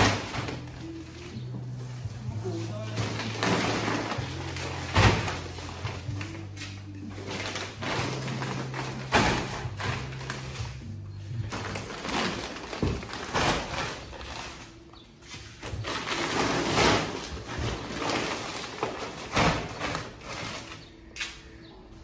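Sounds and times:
plastic sacks rustling: 0.0s - 21.5s
dull thumps of sacks: 2.6s - 10.7s, 11.4s - 14.6s, 15.4s - 20.8s.

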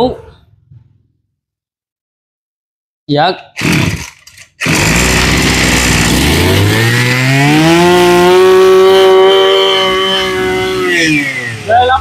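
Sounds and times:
brush cutter engine revving: 3.6s - 12.0s.

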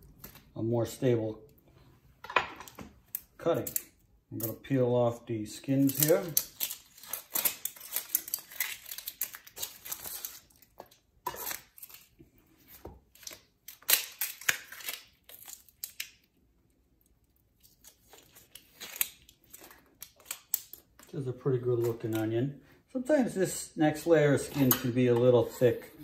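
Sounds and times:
onion skin peeling crackle: 5.7s - 21.2s.

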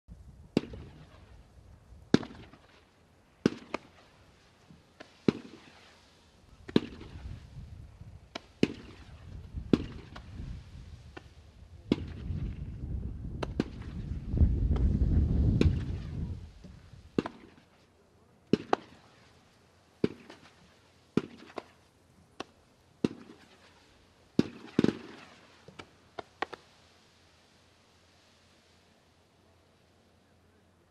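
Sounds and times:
firework bangs: 3.4s - 4.2s, 5.0s - 6.0s, 6.6s - 7.5s, 8.3s - 10.5s, 11.1s - 12.7s, 13.4s - 17.7s, 20.0s - 21.8s, 23.0s - 25.7s.

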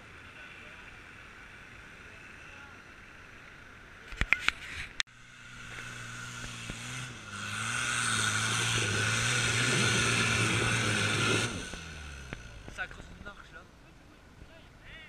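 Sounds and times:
off-road vehicle engine at high revs: 0.0s - 13.6s
wheels spinning flinging soil: 5.6s - 13.5s.

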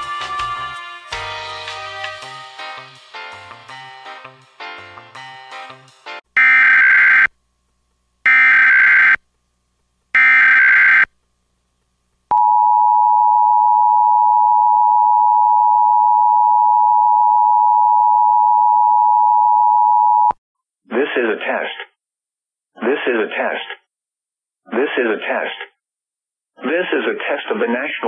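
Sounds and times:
steady warning alarm tone: 6.4s - 7.3s, 8.3s - 9.2s, 10.2s - 11.1s.

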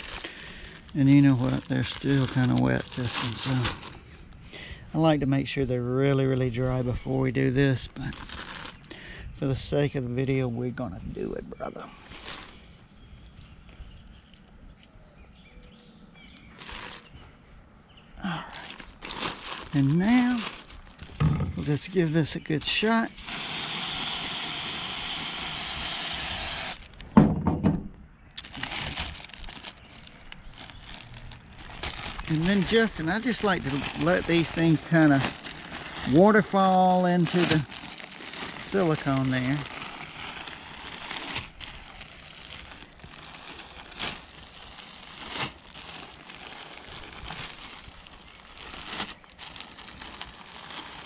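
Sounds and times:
plastic bag crinkling: 0.0s - 4.7s, 6.2s - 9.0s, 11.9s - 12.7s, 16.4s - 17.2s, 18.2s - 27.1s, 28.4s - 51.0s
knocks: 21.2s - 21.7s, 27.2s - 28.0s
aerosol spray hissing: 23.2s - 26.8s.

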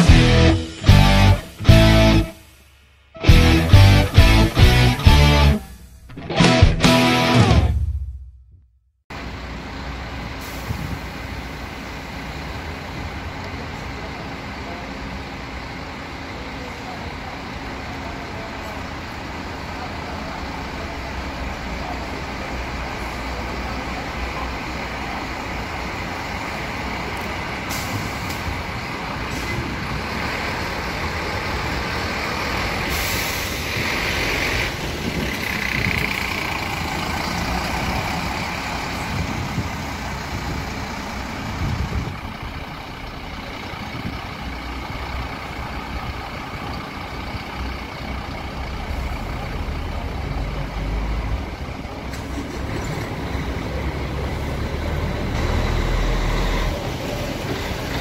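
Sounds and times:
diesel coach engine: 0.0s - 58.0s
air brake hiss: 10.4s - 11.7s, 27.7s - 28.5s, 32.8s - 33.9s.

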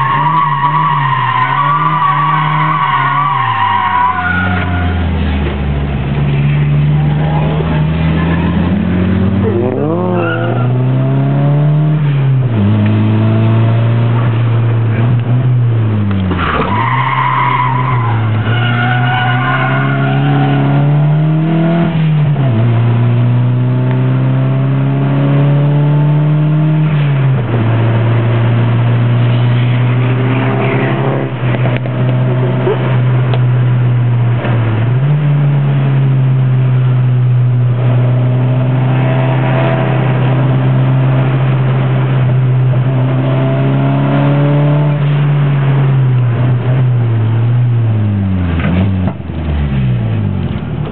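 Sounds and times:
car engine revving: 0.0s - 50.9s
tyres squealing: 16.4s - 20.7s.

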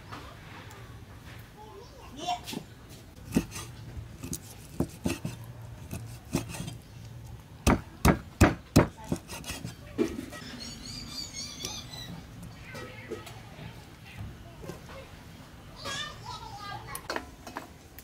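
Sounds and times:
cleaver chopping on wooden block: 3.3s - 6.7s, 7.6s - 9.7s.

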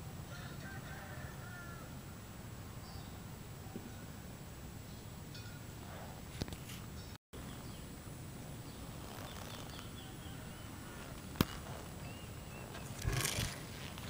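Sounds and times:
faint bird chirps: 8.6s - 13.6s.

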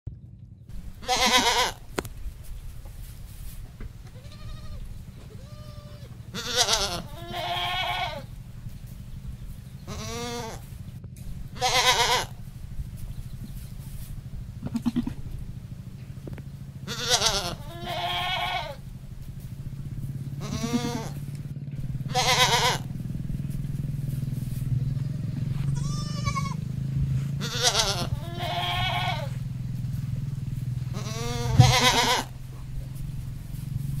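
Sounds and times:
steady low hum: 0.1s - 34.0s
goats bleating: 1.0s - 1.8s, 4.0s - 8.3s, 9.9s - 10.7s, 11.6s - 12.4s, 14.6s - 15.4s, 16.8s - 18.8s, 20.4s - 21.2s, 22.1s - 22.9s, 24.8s - 26.7s, 27.4s - 29.4s, 30.9s - 32.4s.

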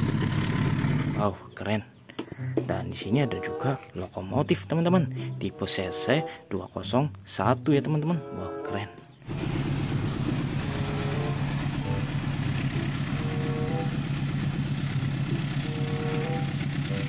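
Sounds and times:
rough rumbling: 0.0s - 1.4s, 9.2s - 16.9s
locomotive engine drone: 0.0s - 1.7s, 2.3s - 17.0s.

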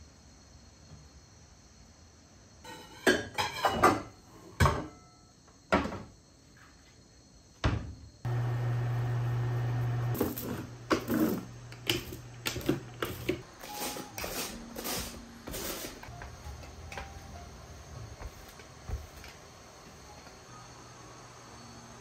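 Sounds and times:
dishes and cupboard doors clattering: 2.7s - 5.0s.

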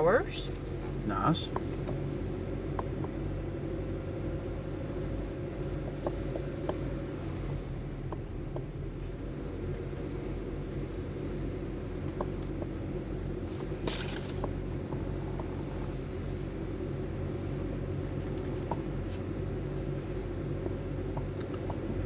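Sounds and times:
engine and tyre hum: 0.0s - 22.0s
light ticks: 20.5s - 21.9s.

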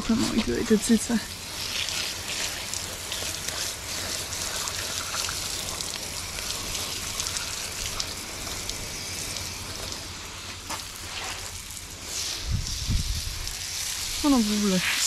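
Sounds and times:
water spraying from hose nozzle: 0.0s - 15.0s
water splattering on paving: 1.3s - 15.0s.

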